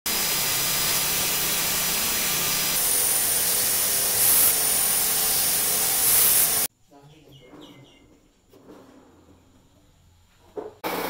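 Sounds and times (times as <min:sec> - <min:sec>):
metal lathe cutting steel: 0:00.1 - 0:06.7.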